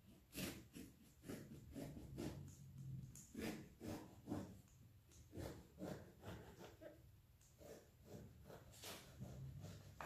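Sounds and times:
knife sawing through eggplant: 0:00.0 - 0:02.5, 0:03.2 - 0:04.6, 0:05.3 - 0:07.0, 0:07.6 - 0:10.0.

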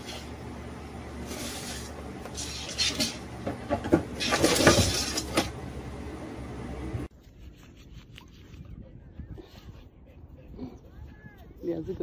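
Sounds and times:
steady low hum: 0:00.0 - 0:07.1
rubbing and scraping on clay pot: 0:01.2 - 0:05.5, 0:07.1 - 0:10.5.

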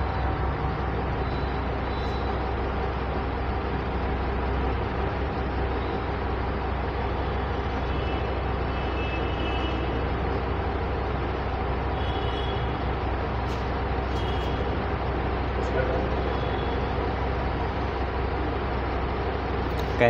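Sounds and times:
faint constant hum: 0:00.0 - 0:20.0
rumble and hiss: 0:00.0 - 0:20.0.

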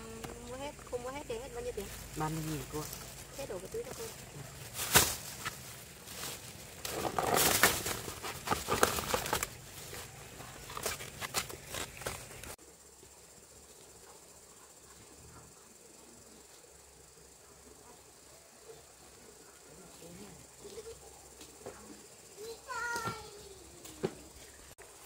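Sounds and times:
plastic bag rustling: 0:01.4 - 0:12.6.

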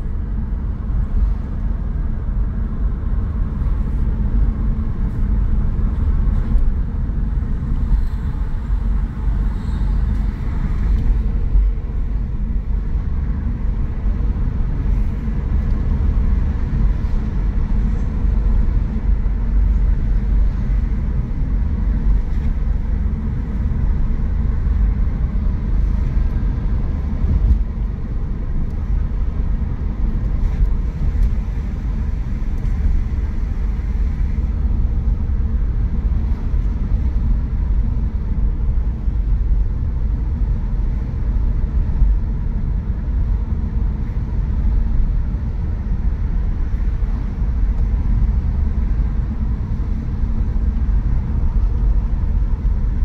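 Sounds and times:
car engine and tyre noise: 0:00.0 - 0:53.0.

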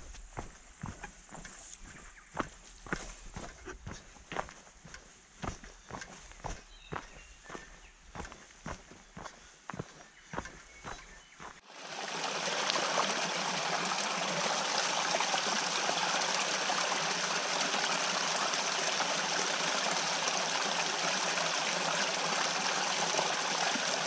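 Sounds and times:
stream water rushing: 0:11.7 - 0:24.0.

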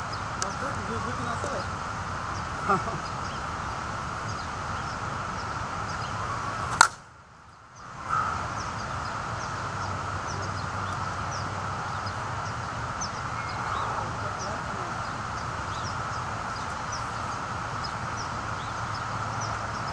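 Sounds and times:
bat striking softball: 0:06.7 - 0:07.0.

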